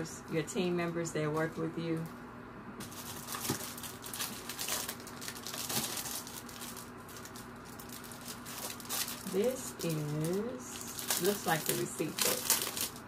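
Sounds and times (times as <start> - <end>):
plastic and paper crinkling: 2.8 - 13.0.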